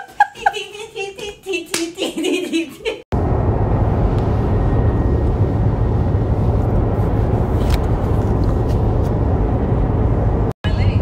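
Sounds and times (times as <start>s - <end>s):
road and engine rumble in car: 3.1s - 11.0s.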